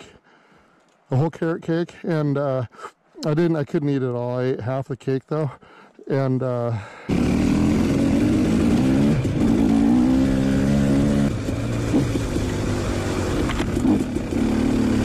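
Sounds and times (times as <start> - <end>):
two-stroke dirt bike engine: 7.1 - 15.0.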